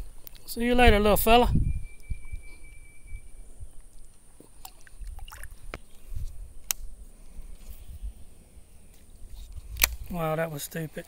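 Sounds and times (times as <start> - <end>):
water sloshing in creek: 4.0 - 6.2.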